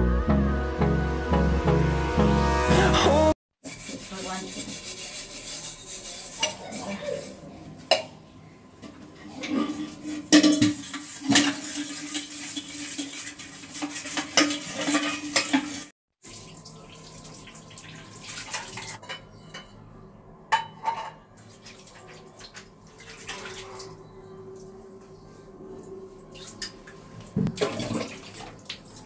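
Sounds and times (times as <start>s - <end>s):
metal vessels clinking and scraping: 3.6s - 8.2s, 8.8s - 15.9s, 18.5s - 19.9s, 20.5s - 21.3s
water splashing from a tap: 10.6s - 19.0s, 21.4s - 24.0s, 26.3s - 29.0s.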